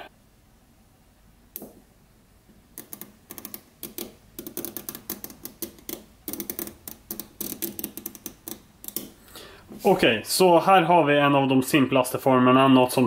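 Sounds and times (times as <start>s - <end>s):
magnet balls clicking together: 2.8s - 9.2s.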